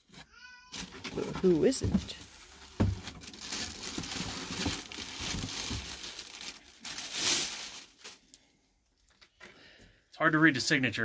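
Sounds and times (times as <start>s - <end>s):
plastic bag crinkling: 0.8s - 8.4s.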